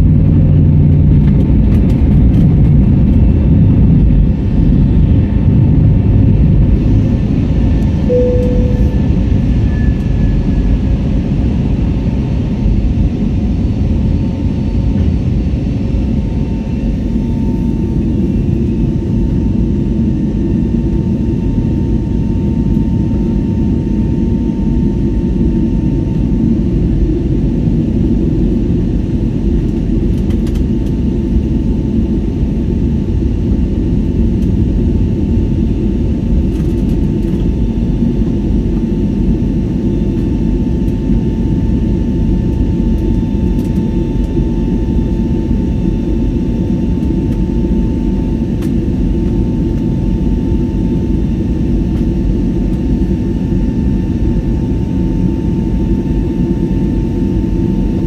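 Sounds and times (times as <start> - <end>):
faint steady whine: 0.0 - 11.9
airliner cabin roar: 0.0 - 58.0.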